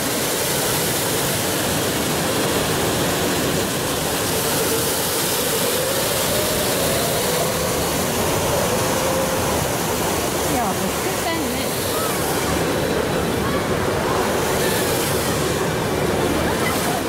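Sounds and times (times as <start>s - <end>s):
waterfall cascading into pool: 0.0s - 17.0s.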